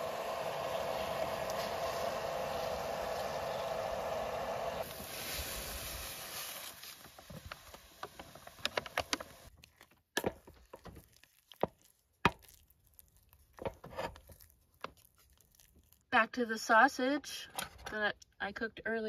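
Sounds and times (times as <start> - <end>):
hiss from heating pot: 0.0 - 9.5.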